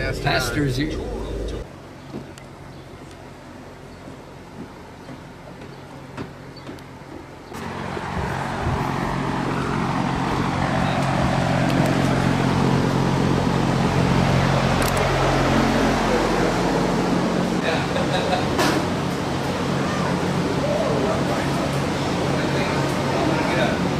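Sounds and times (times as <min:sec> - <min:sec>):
electric drum fan running: 0:07.6 - 0:23.9.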